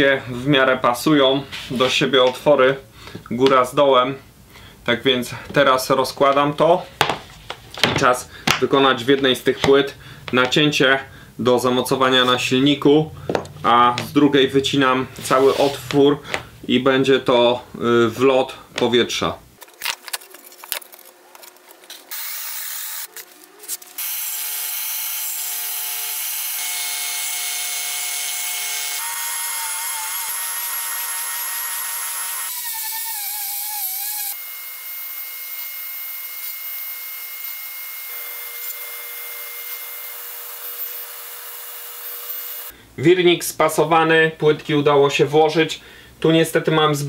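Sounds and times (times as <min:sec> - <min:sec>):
woodworking power tools cutting: 0:22.1 - 0:42.7.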